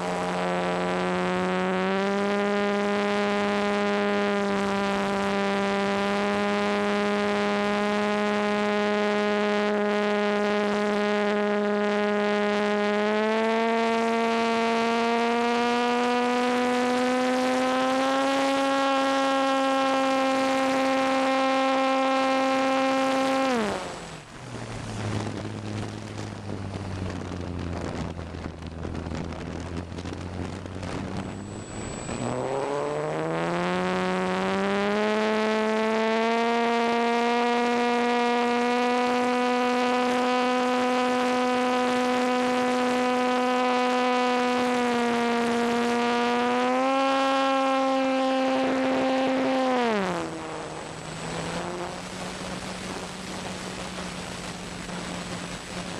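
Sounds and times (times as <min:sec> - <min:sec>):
electric motor and propeller whine: 0:00.0 - 0:55.9.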